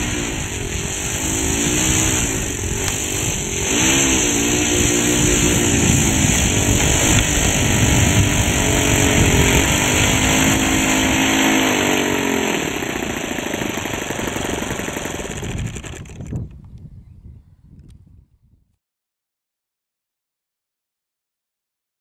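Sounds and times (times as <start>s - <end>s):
model airplane engine running: 0.0s - 16.6s.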